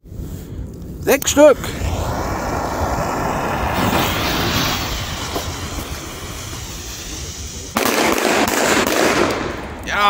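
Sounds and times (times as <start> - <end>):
fuse hissing: 1.2 - 7.8
firecrackers banging: 1.3 - 9.9.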